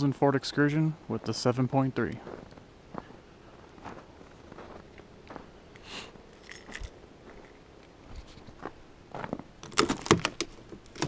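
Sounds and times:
footsteps crunching in snow: 2.2s - 9.5s
sharp clicks and knocks: 9.6s - 11.0s.

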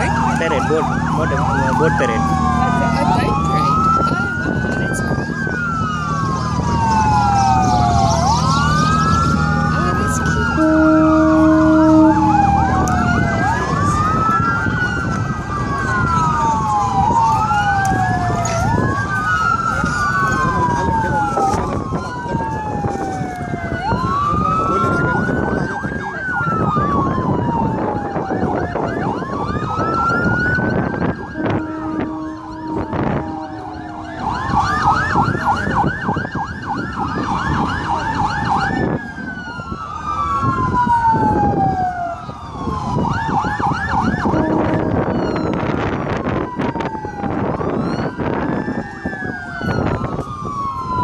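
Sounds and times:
boat engines rumbling: 0.0s - 51.0s
wailing siren: 0.0s - 51.0s
yelping siren: 0.0s - 51.0s
horn blast: 10.5s - 12.6s, 31.4s - 34.4s, 44.2s - 45.2s.

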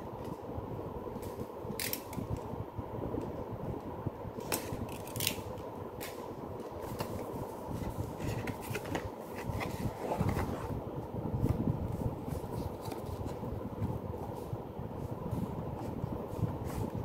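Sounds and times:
steady low hum: 0.0s - 17.0s
cardboard and paper rustling: 6.8s - 10.7s, 11.4s - 14.5s.

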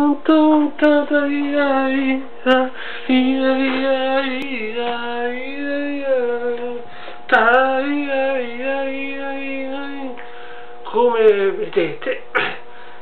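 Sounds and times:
person singing unaccompanied: 0.0s - 12.6s.

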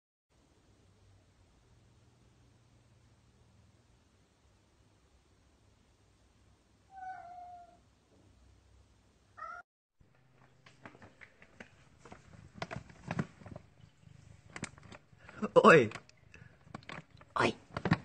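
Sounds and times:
cat meowing: 6.9s - 7.8s, 9.4s - 9.6s
rustling and knocking: 10.0s - 18.0s.

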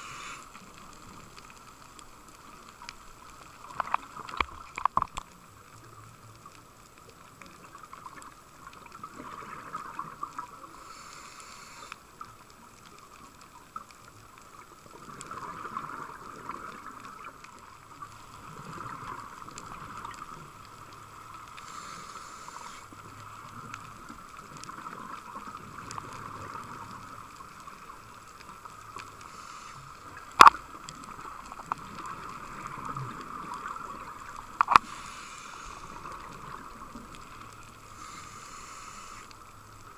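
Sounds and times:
short hiss: 0.0s - 0.6s, 10.8s - 12.0s, 21.6s - 23.0s, 29.2s - 30.6s, 34.6s - 36.0s, 37.9s - 39.4s
diver regulator breathing: 0.0s - 0.8s, 10.7s - 12.1s, 21.5s - 23.0s, 29.1s - 30.2s, 34.6s - 36.3s, 37.8s - 39.5s.

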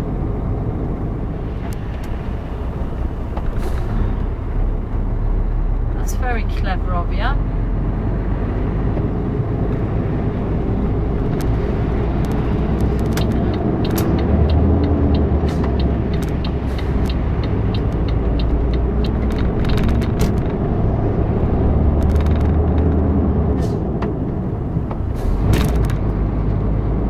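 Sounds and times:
lorry engine rumble: 0.0s - 27.0s
road and tyre noise: 0.0s - 27.0s
light evenly spaced ticks: 12.2s - 19.4s.

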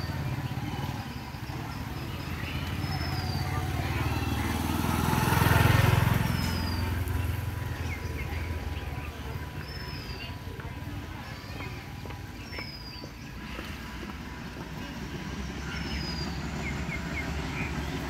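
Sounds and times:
motorcycle passing by: 0.0s - 18.0s.

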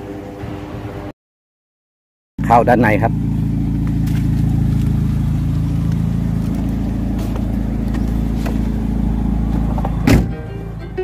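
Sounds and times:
truck engine idling: 2.4s - 11.0s
car door shutting: 5.7s - 10.6s.

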